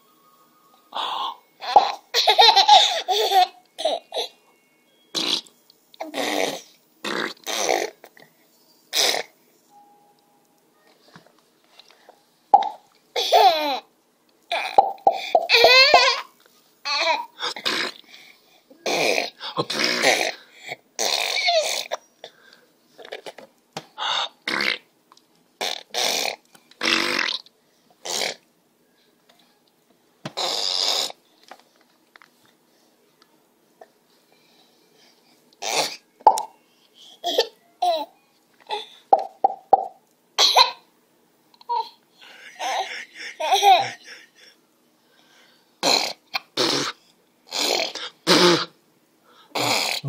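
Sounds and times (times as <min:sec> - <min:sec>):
baby blowing raspberries: 0:05.1 - 0:08.0, 0:08.9 - 0:09.3, 0:18.8 - 0:20.4, 0:21.0 - 0:21.9, 0:25.6 - 0:27.4, 0:30.4 - 0:31.2, 0:45.8 - 0:48.8.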